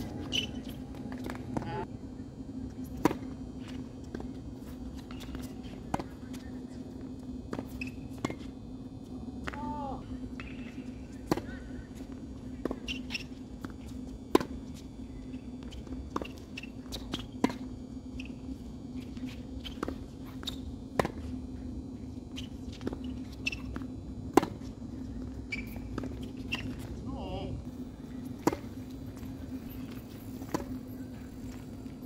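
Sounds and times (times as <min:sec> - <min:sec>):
steady low hum: 0:00.0 - 0:32.0
tennis ball bouncing: 0:10.4 - 0:11.6, 0:14.3 - 0:14.6, 0:15.6 - 0:18.3, 0:19.7 - 0:21.3, 0:22.7 - 0:24.7, 0:28.3 - 0:29.3, 0:30.4 - 0:30.8
rackets striking tennis ball: 0:28.3 - 0:29.3.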